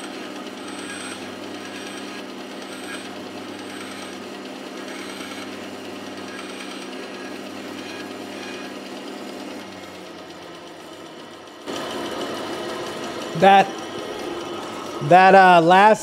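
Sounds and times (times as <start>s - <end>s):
bandsaw motor hum: 0.0s - 16.0s.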